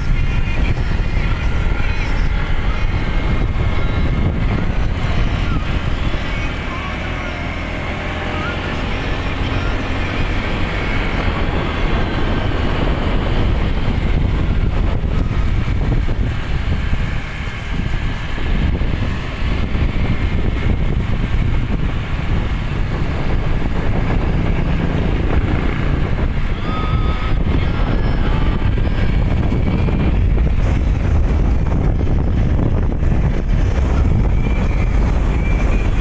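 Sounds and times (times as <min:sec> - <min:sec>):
motorcycle engine running: 0:00.0 - 0:36.0
wind buffeting microphone: 0:00.0 - 0:36.0.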